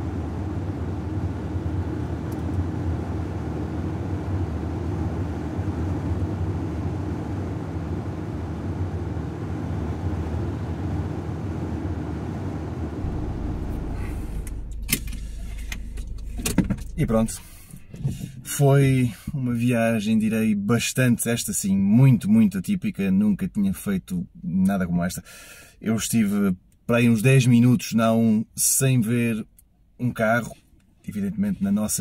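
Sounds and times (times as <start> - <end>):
car engine and road hum: 0.0 - 20.3.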